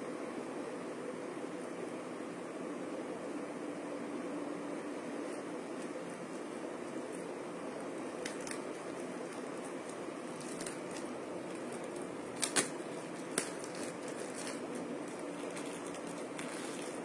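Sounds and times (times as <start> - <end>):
steady background hiss: 0.0 - 17.0
sharp plastic crackles: 5.7 - 17.0
plastic bag being torn open: 8.1 - 17.0.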